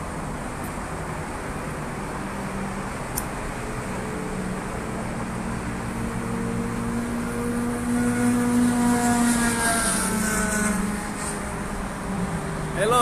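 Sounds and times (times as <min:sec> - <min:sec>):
steady outdoor hum: 0:00.0 - 0:13.0
vehicle engine passing by: 0:03.7 - 0:13.0.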